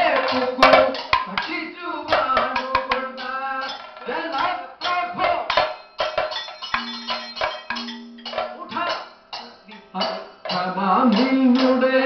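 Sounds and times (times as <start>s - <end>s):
vocalists singing: 0.0s - 5.6s, 8.6s - 12.0s
drum strokes: 0.0s - 12.0s.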